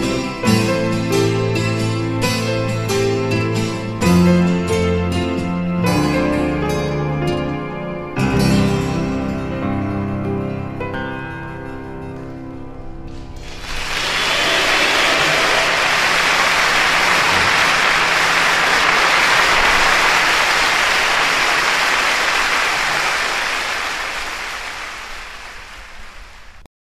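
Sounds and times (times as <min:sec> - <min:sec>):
music: 0:00.0 - 0:21.9
audience applauding: 0:13.4 - 0:26.7.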